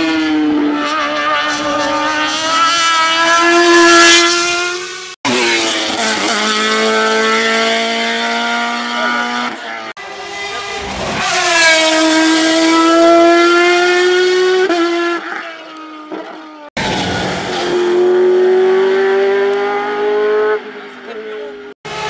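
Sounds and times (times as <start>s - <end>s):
race car engines at high revs: 0.0s - 22.0s.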